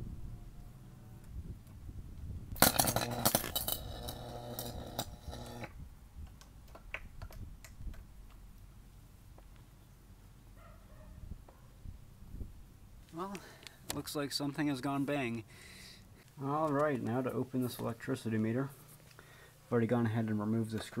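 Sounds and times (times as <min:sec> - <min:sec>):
electrical arcing crackling buzz: 0:02.5 - 0:05.8.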